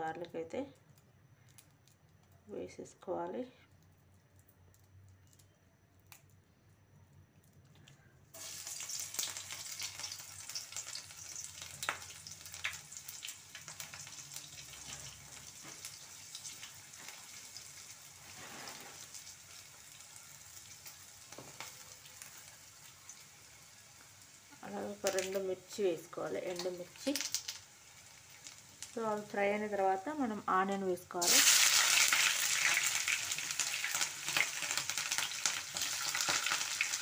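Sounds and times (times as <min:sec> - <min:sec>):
oil popping and crackling: 0:07.4 - 0:29.4, 0:31.2 - 0:37.0
garlic sizzling in hot oil: 0:08.3 - 0:37.0.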